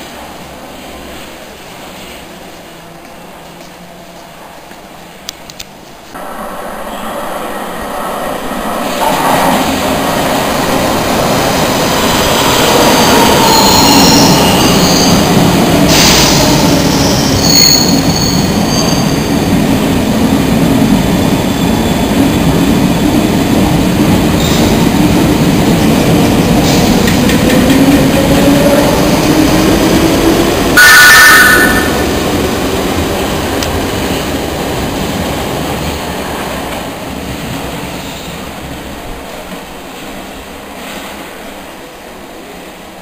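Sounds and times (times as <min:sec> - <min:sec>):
train wheels rumbling on rails: 0:00.0 - 0:43.0
high-pitched wheel squeal: 0:13.0 - 0:15.3, 0:15.9 - 0:19.3.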